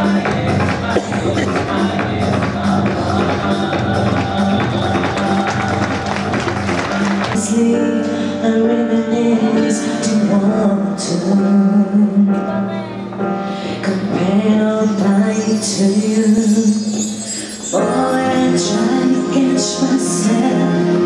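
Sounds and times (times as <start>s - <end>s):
percussive music: 0.0s - 7.5s
backing track: 0.0s - 21.0s
woman singing into microphone: 0.8s - 5.2s, 7.3s - 13.0s, 13.6s - 21.0s.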